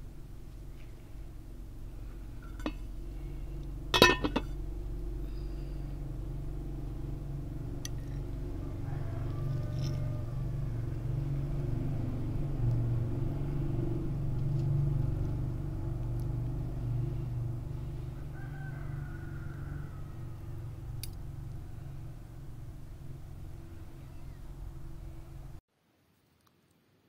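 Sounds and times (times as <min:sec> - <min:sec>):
low rumble: 0:00.0 - 0:18.4
rooster crowing: 0:08.3 - 0:11.3, 0:18.0 - 0:20.8.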